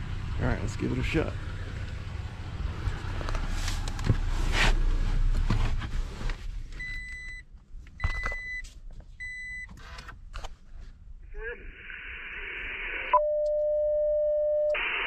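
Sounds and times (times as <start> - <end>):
rustling and knocks in vehicle cab: 3.7 - 6.9.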